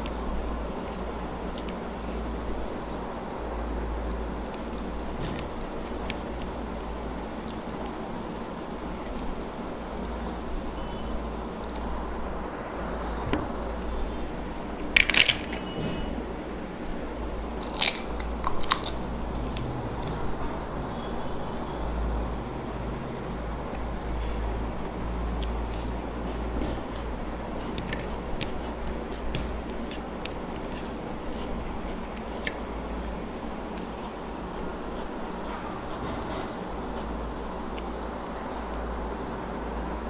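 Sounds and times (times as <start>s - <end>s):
eating by hand: 0.0s - 10.9s, 24.8s - 40.0s
steady low hum: 0.0s - 40.0s.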